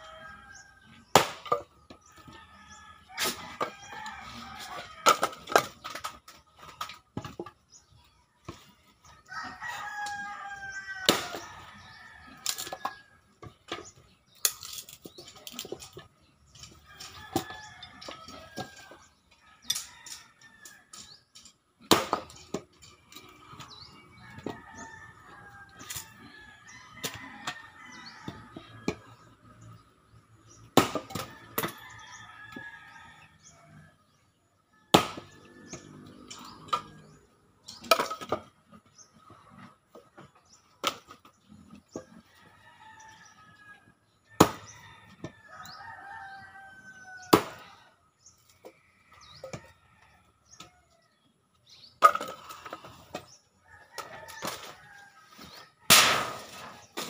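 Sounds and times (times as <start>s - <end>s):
chickens and rooster calling: 0.0s - 57.0s
axe chopping wood: 1.1s - 1.7s, 11.0s - 11.5s, 21.8s - 22.7s, 30.7s - 31.8s, 34.9s - 35.4s, 44.4s - 44.7s, 47.3s - 47.6s, 55.9s - 56.6s.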